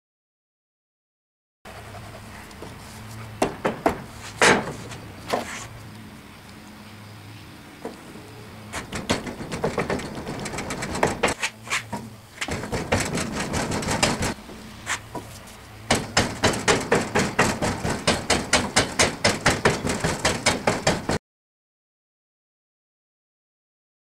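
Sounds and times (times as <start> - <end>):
rammer pounding sand: 8.6 - 21.2.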